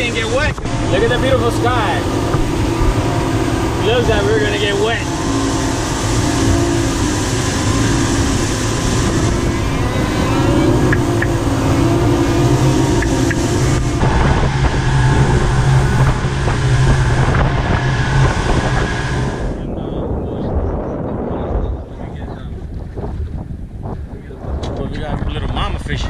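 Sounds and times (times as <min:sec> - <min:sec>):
water rushing past hull: 0:00.0 - 0:19.7
outboard motors droning: 0:00.0 - 0:26.0
wind: 0:00.0 - 0:26.0.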